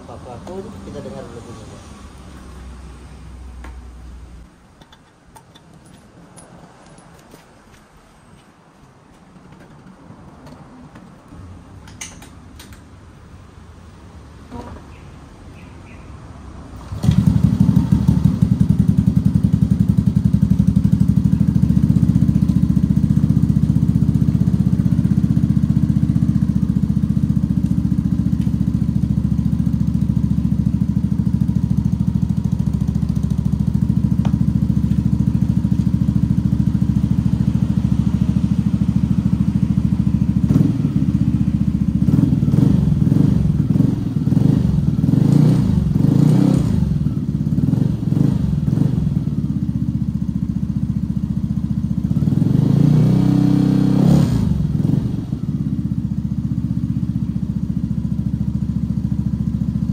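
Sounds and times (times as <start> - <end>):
scooter engine idling: 0.0 - 2.8, 16.8 - 52.4, 54.4 - 59.9.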